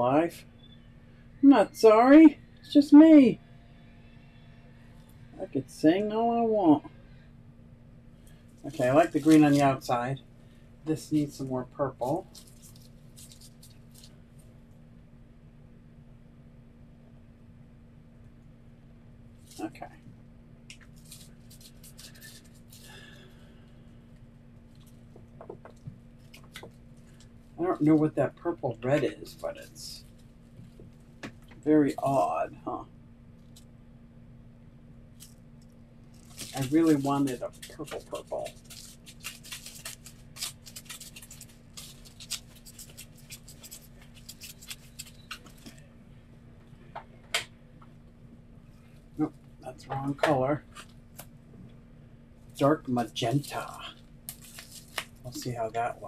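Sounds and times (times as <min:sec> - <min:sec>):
steady low hum: 0:00.0 - 0:56.0
gloved hands rustling: 0:08.3 - 0:09.8, 0:12.0 - 0:14.5, 0:20.7 - 0:23.3, 0:36.0 - 0:45.8, 0:52.5 - 0:55.6.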